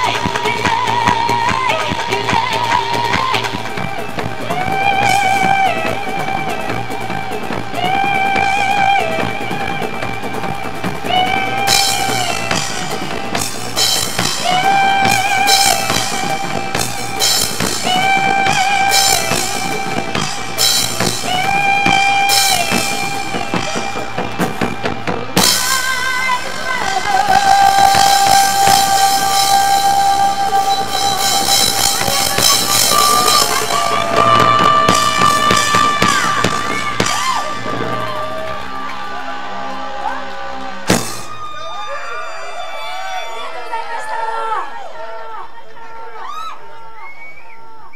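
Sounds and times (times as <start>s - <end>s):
woman singing: 0.0s - 10.1s, 14.2s - 20.4s, 25.4s - 37.4s
drum kit: 0.0s - 41.9s
cymbals crashing: 27.7s - 39.6s.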